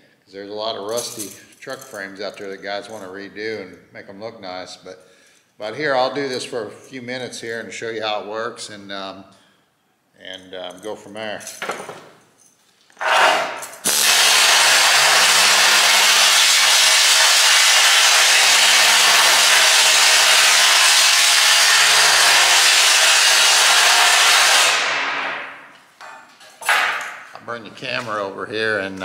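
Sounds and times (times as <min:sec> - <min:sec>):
pneumatic needle scaler hammering metal: 0:13.0 - 0:25.6.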